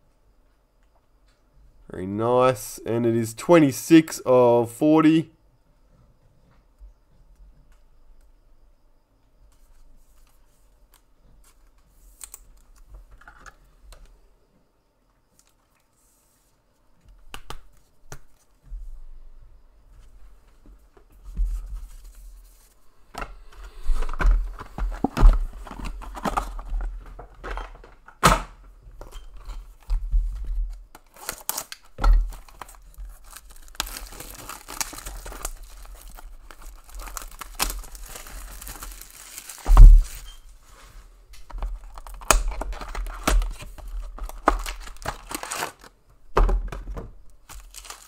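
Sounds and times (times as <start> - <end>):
plastic wrapping tearing: 31.1 - 40.3, 41.8 - 45.9, 47.5 - 48.0
cardboard thumps on desk: 39.6 - 40.2.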